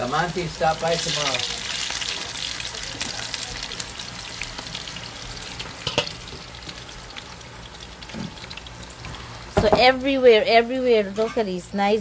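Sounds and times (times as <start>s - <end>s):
food deep-frying in hot oil: 0.0s - 12.0s
oil crackles and pops: 0.6s - 9.6s.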